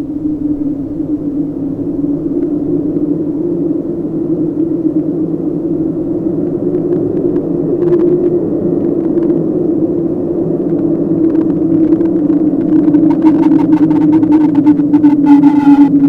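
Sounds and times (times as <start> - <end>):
faint scattered crackles: 0.0 - 16.0
low droning rumble: 0.0 - 16.0
high tone: 12.8 - 16.0.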